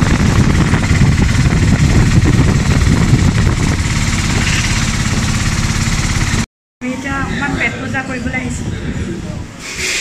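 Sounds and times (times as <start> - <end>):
auto-rickshaw engine pulsing: 0.0 - 6.5
road noise: 0.0 - 10.0.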